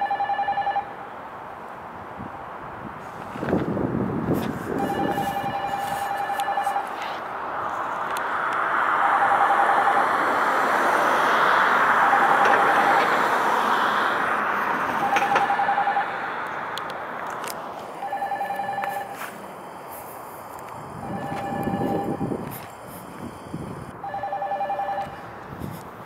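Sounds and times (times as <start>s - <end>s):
vehicle passing: 1.2s - 26.0s
steady high tone: 4.8s - 7.0s, 9.0s - 10.7s, 11.8s - 13.2s, 15.0s - 16.2s, 18.0s - 25.2s.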